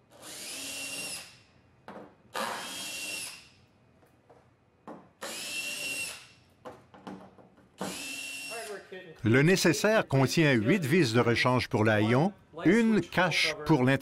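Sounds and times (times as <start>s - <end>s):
cordless drill running: 0.1s - 1.4s, 2.4s - 3.5s, 5.2s - 6.3s, 7.8s - 8.7s.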